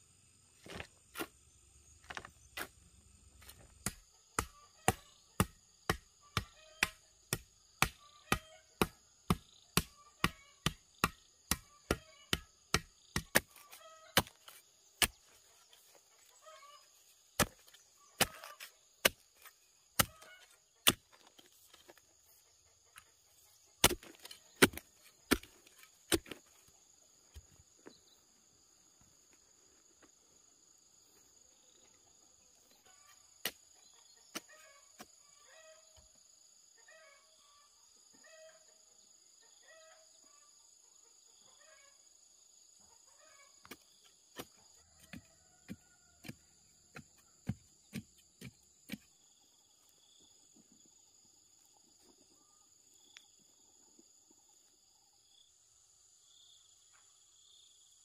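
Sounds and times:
metal blade striking stony soil: 0:23.8 - 0:26.4.

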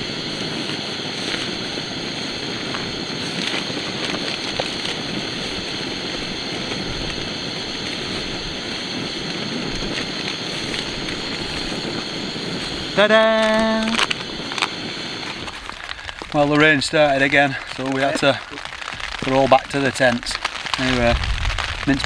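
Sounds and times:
gas stove burner roaring: 0:00.0 - 0:22.0
faint rustles and clicks: 0:09.2 - 0:22.0.

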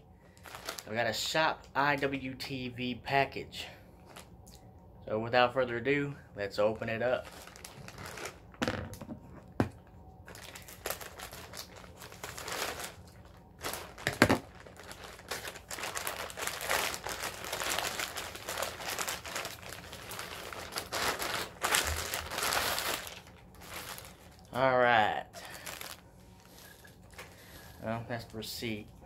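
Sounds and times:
plastic mailer bag crinkling: 0:00.3 - 0:02.2, 0:06.6 - 0:09.0, 0:09.8 - 0:29.0.

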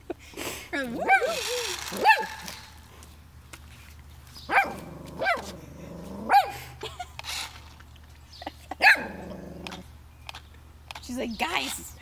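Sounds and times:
puppy barking: 0:01.0 - 0:02.5, 0:04.5 - 0:05.5, 0:06.3 - 0:06.6, 0:08.8 - 0:09.3.

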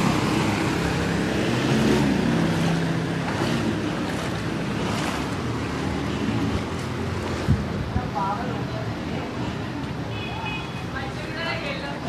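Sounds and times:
water sloshing around wading feet: 0:00.0 - 0:08.0
wind buffeting microphone: 0:06.3 - 0:09.4.

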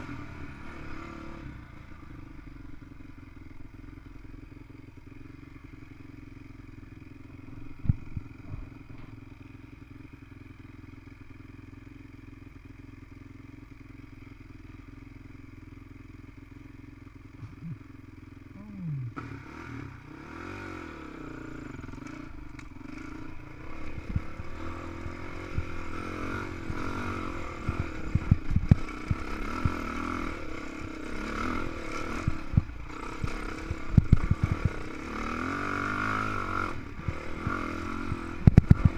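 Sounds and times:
dirt bike engine revving: 0:17.4 - 0:38.9.

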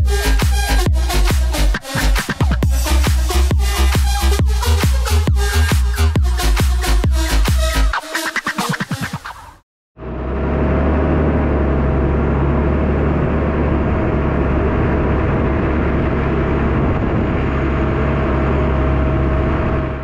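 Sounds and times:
tractor diesel engine drone: 0:10.0 - 0:20.0.

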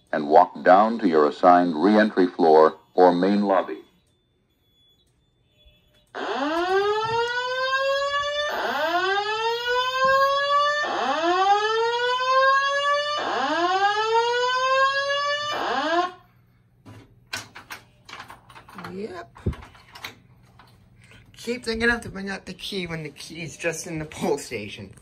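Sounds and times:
rising whoop alarm tone: 0:06.2 - 0:16.2.

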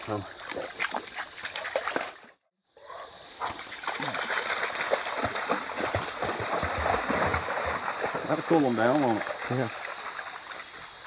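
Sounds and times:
dogs splashing in water: 0:00.0 - 0:02.4, 0:03.4 - 0:11.0
running water: 0:03.4 - 0:11.0.

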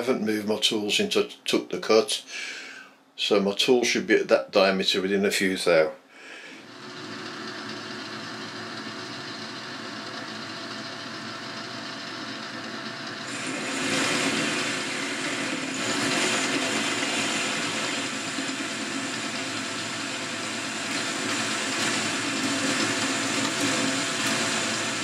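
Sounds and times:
metal lathe humming: 0:06.6 - 0:25.0
lathe tool cutting metal: 0:06.7 - 0:25.0.

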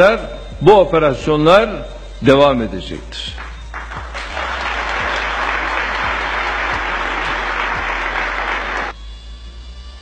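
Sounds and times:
large audience applauding: 0:03.4 - 0:09.0.

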